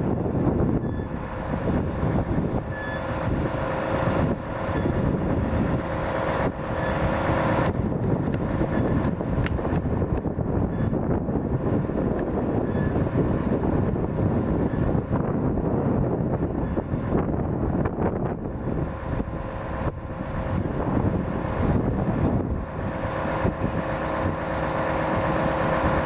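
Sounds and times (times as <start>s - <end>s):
diesel truck engine running: 0.0s - 26.0s
steady hydraulic whine: 0.0s - 26.0s.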